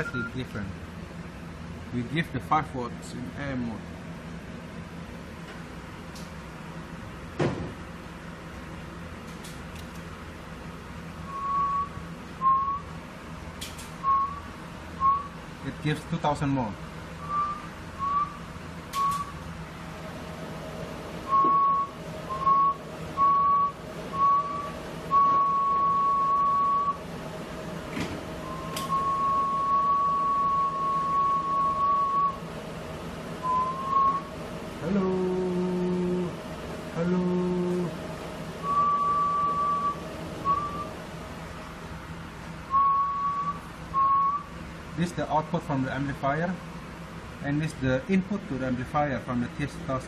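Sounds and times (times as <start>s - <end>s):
faint steady hum: 0.0s - 50.0s
person whistling: 11.3s - 12.8s, 14.0s - 14.4s, 17.3s - 18.4s, 42.7s - 44.4s.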